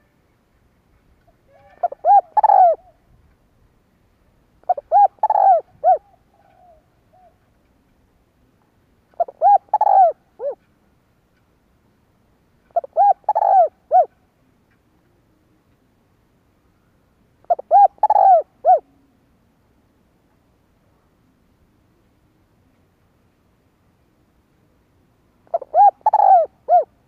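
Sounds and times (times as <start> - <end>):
dove cooing: 1.5 - 3.0, 4.6 - 7.5, 9.1 - 10.7, 12.7 - 14.2, 17.4 - 19.2, 25.5 - 27.0.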